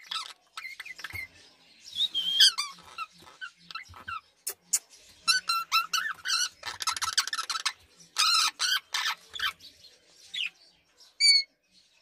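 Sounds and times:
parakeet chattering: 0.0 - 1.3, 2.4 - 9.6.

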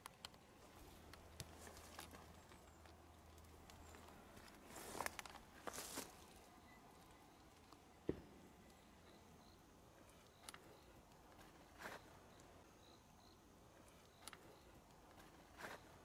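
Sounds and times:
faint footsteps: 0.6 - 6.4
insects chirping: 1.6 - 16.0.

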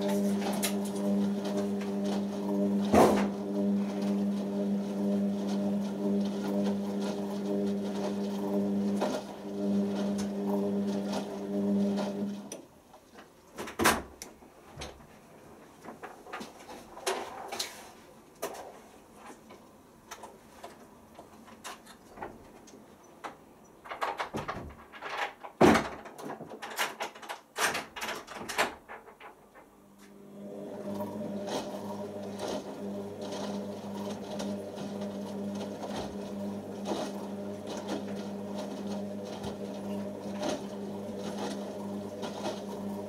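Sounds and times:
washing machine humming: 0.0 - 43.0
washing machine knocks and clicks: 23.3 - 29.1.

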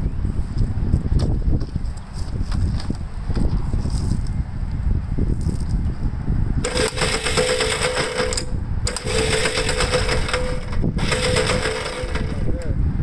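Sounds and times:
wind rumble on microphone: 0.0 - 13.0
electric starter cranking: 6.6 - 12.7.

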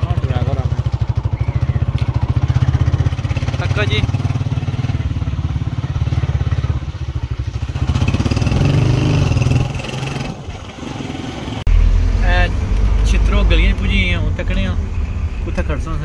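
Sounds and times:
motorcycle engine running: 0.0 - 11.7.

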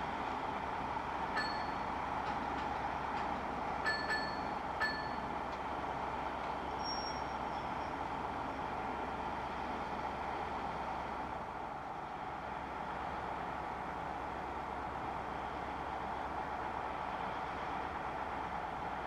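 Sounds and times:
faint high whistle: 6.8 - 8.0.

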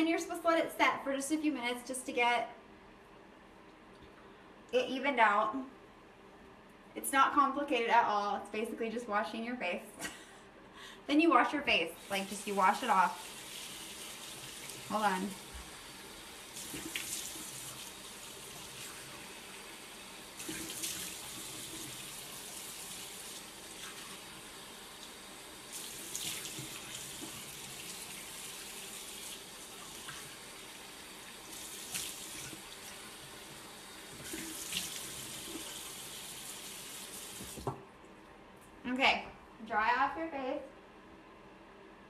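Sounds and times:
tap running into a sink: 37.3 - 37.8.

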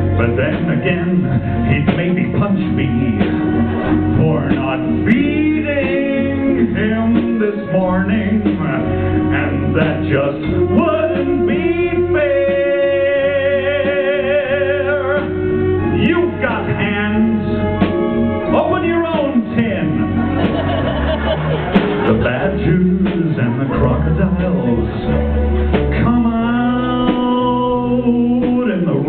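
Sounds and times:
live band playing: 0.0 - 29.0
man singing pop song: 0.1 - 3.4, 4.1 - 17.7, 22.0 - 25.2, 25.9 - 29.0.

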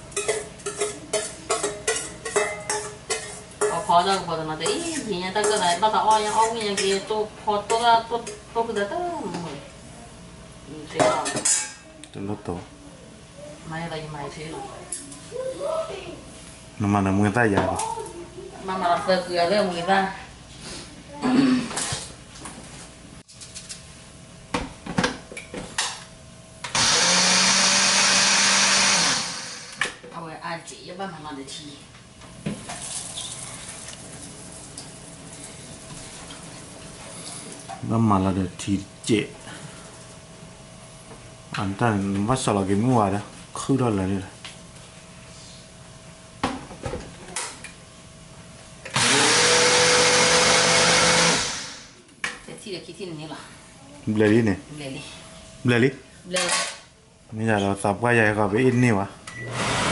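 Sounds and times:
blender motor grinding rice: 26.7 - 29.9, 48.9 - 51.9, 59.5 - 59.9.

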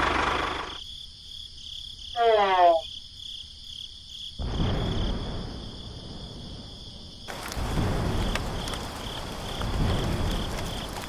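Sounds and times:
crickets chirping: 0.0 - 11.0
rain falling: 5.0 - 11.0
raindrop ticks: 7.3 - 11.0.

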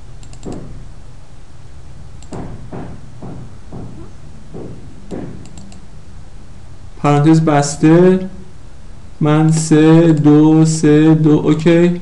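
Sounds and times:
low computer hum: 0.0 - 12.0
computer mouse clicking: 0.2 - 0.7, 2.2 - 2.4, 5.4 - 5.9
soft low thuds: 2.3 - 5.6.

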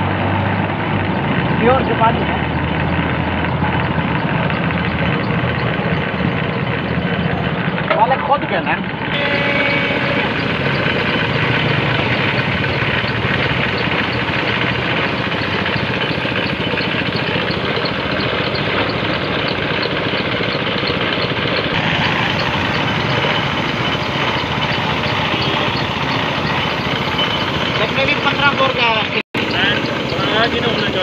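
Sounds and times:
air compressor running: 0.0 - 31.0
fast ticking: 1.0 - 31.0
paint spray gun hissing: 21.8 - 27.5.

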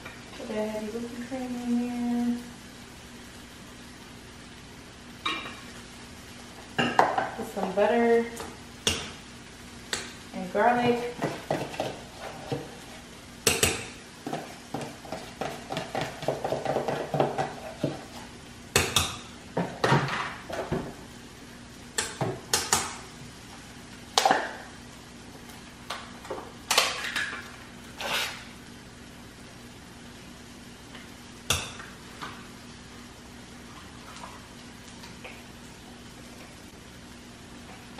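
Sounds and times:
utensil scraping metal saucepan: 27.9 - 28.5.

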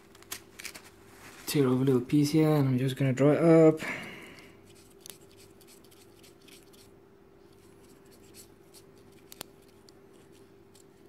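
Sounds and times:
paper towel rustling and scratching: 0.0 - 2.1.

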